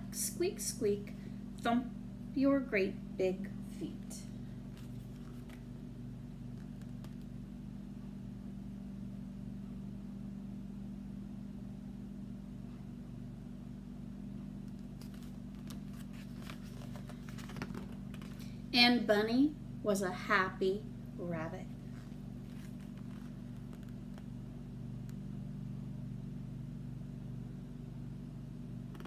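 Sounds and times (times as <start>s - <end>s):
steady low hum: 0.0s - 29.0s
picture book rustling: 4.6s - 5.7s, 6.5s - 7.3s, 14.7s - 18.5s, 21.8s - 24.3s.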